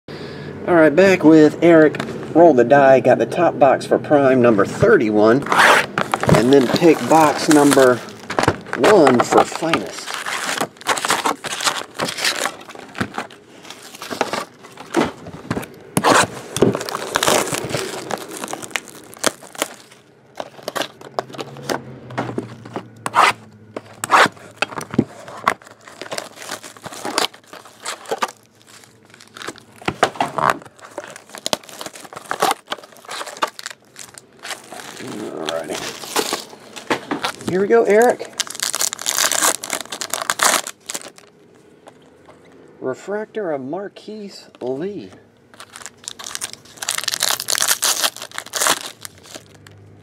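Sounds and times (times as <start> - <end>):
foil packs rustling: 4.8 - 41.3, 45.5 - 49.8
shrink-wrap crinkling: 5.4 - 42.1, 45.5 - 50.0
cardboard box tearing: 5.5 - 21.8, 22.4 - 41.2, 45.6 - 49.6.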